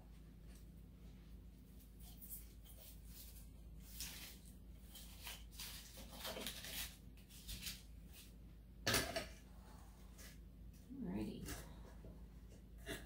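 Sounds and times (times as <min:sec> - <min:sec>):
artificial greenery rustling: 0:00.4 - 0:08.4.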